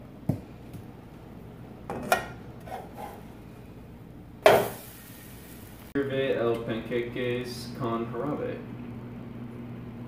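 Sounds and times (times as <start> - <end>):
metal spatula scraping frying pan: 2.1 - 3.3.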